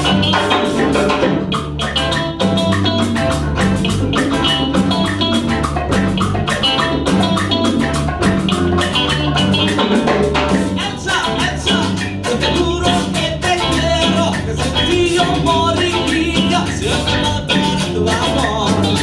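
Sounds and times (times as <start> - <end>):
bass guitar: 0.0 - 19.0
congas: 0.0 - 19.0
drum kit: 0.0 - 19.0
electric guitars: 0.0 - 19.0.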